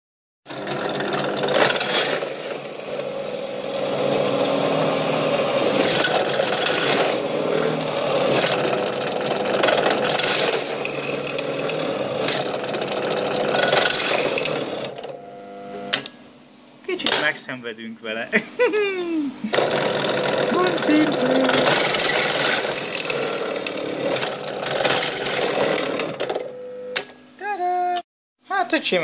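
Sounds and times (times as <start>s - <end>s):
drill press motor hum: 0.5s - 16.3s, 19.4s - 27.2s
drill bit squealing on metal: 1.8s - 8.4s, 10.1s - 12.2s, 13.8s - 14.9s, 21.6s - 24.3s, 25.1s - 26.1s.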